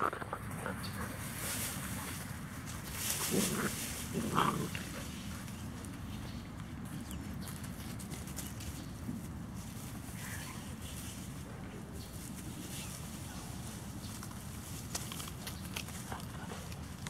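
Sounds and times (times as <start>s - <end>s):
steady background hiss: 0.0s - 6.3s.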